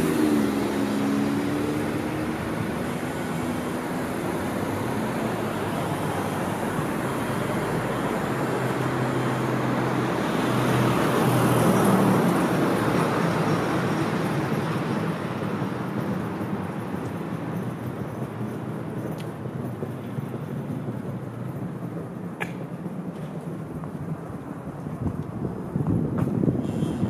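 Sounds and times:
vehicle passing: 0:00.0 - 0:16.6
traffic hiss: 0:26.5 - 0:27.0.

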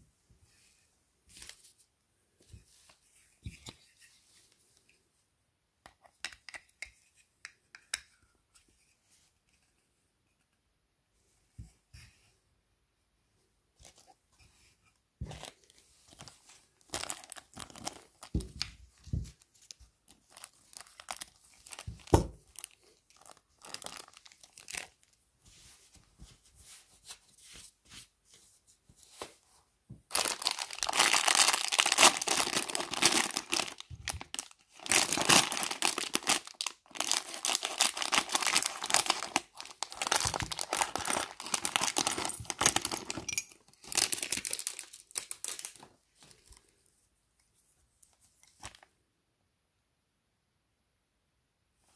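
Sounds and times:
plastic bags crinkling: 0:15.4 - 0:18.7, 0:20.1 - 0:25.0, 0:30.1 - 0:45.9
plastic bag tearing open: 0:30.1 - 0:43.2.

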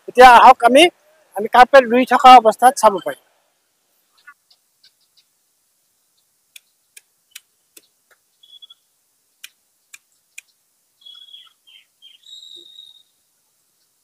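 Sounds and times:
small bird chirping: 0:04.0 - 0:14.0.

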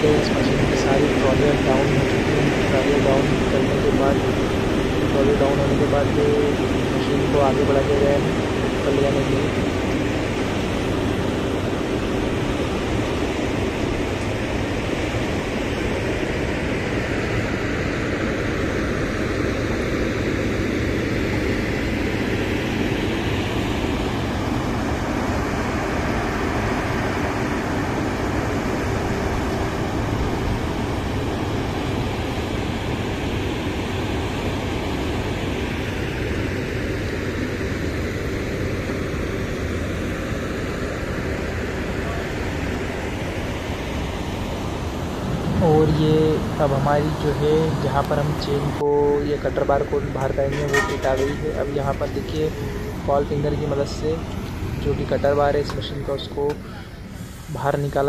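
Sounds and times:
machine engines droning: 0:00.0 - 0:58.0.

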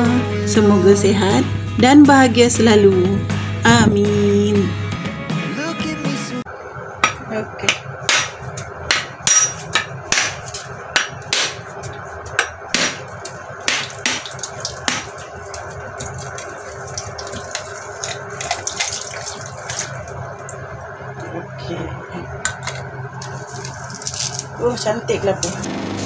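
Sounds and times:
water running into sink: 0:13.1 - 0:20.8.

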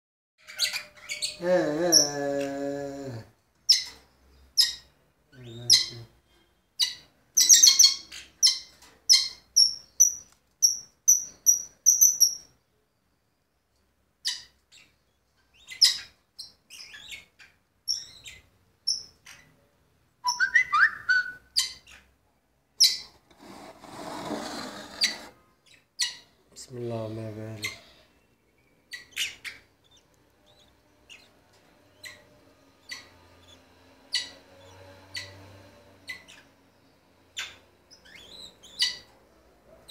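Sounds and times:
budgerigars chirping: 0:04.6 - 0:04.9, 0:06.8 - 0:12.5, 0:14.2 - 0:19.5, 0:21.5 - 0:22.1, 0:25.0 - 0:26.4, 0:28.8 - 0:39.1.

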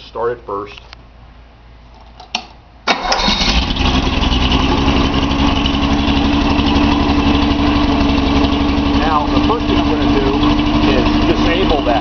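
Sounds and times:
car engine starting and idling: 0:02.8 - 0:12.0.

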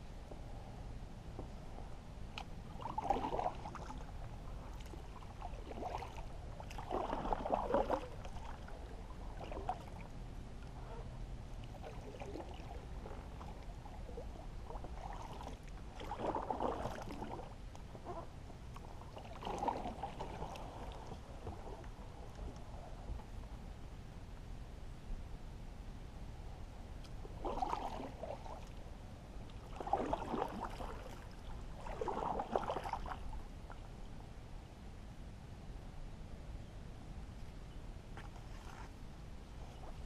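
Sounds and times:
steady low rumble: 0:00.0 - 0:40.0
paddle splashing in water: 0:02.7 - 0:10.1, 0:11.7 - 0:18.3, 0:19.0 - 0:22.0, 0:27.3 - 0:28.8, 0:29.6 - 0:33.3, 0:38.2 - 0:39.0.

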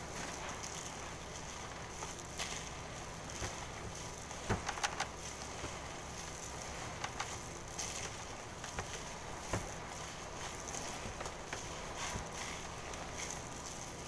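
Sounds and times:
hand squishing meat mixture: 0:00.0 - 0:14.0
steady low hum: 0:00.0 - 0:14.0
light clicks and taps: 0:04.4 - 0:09.9.

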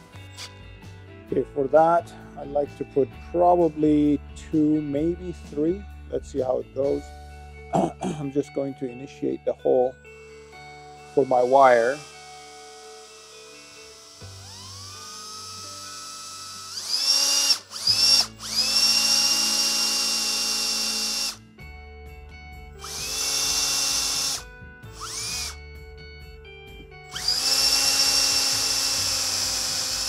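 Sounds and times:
cordless drill whining: 0:00.0 - 0:00.6, 0:10.1 - 0:21.5, 0:22.7 - 0:25.7, 0:27.0 - 0:30.0.

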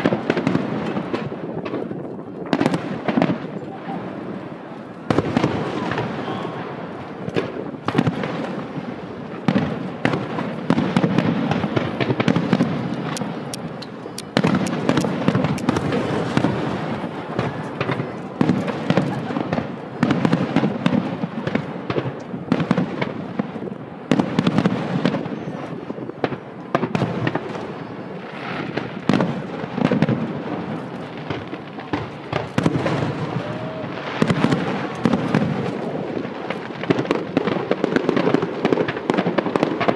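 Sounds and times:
firework crackling and popping: 0:00.0 - 0:39.9
firework shells bursting: 0:09.4 - 0:22.2.

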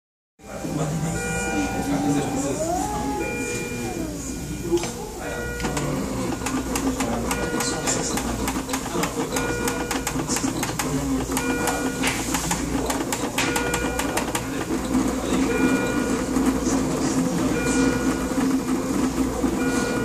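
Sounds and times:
high tone pattern: 0:00.4 - 0:06.2
printer rapid clicking: 0:05.6 - 0:20.0.

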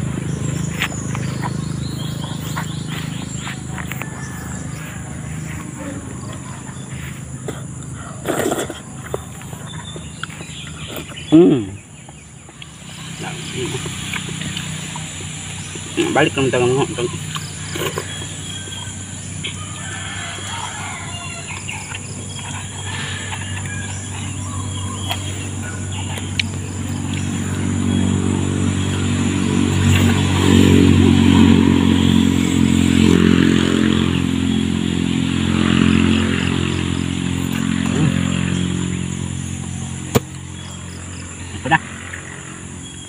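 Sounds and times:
engine hum: 0:00.0 - 0:43.0.

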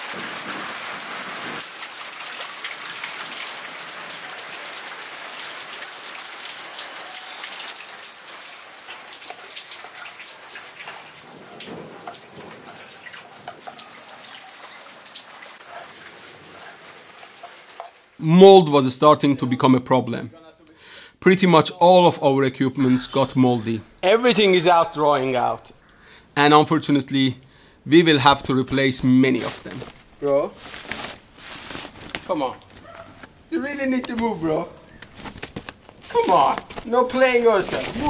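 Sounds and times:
steady rain falling: 0:00.0 - 0:19.4, 0:28.2 - 0:38.0.

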